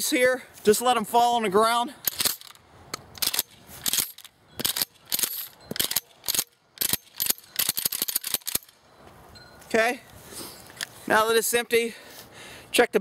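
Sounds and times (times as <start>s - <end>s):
shotgun pump action clacking: 2.0s - 8.8s.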